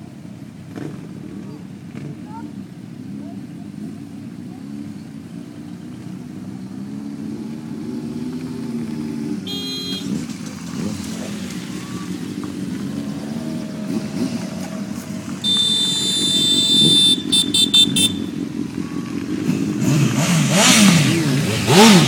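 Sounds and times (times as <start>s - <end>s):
motorcycle engines running: 0.0s - 22.0s
loud horn blast: 9.4s - 10.2s, 15.4s - 18.4s
horn: 15.4s - 18.3s.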